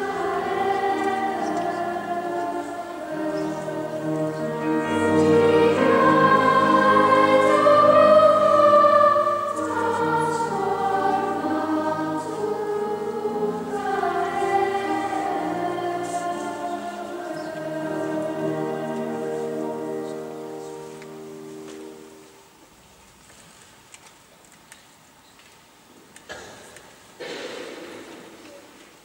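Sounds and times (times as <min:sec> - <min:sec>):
girls choir singing: 0:00.0 - 0:22.2.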